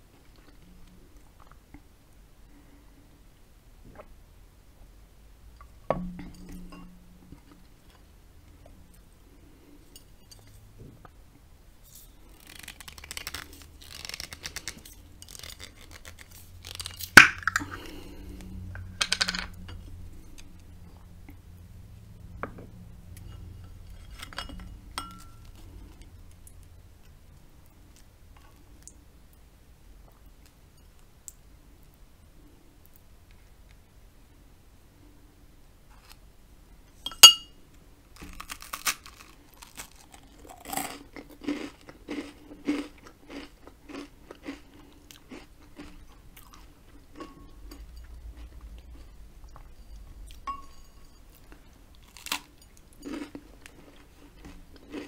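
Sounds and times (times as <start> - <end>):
tableware knocking and clinking: 18.9 - 19.8, 24.2 - 25.4, 37.1 - 37.5, 50.4 - 51.2.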